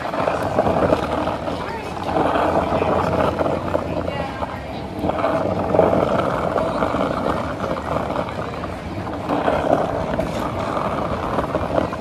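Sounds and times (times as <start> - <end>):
skateboard wheels rolling on asphalt: 0.0 - 12.0.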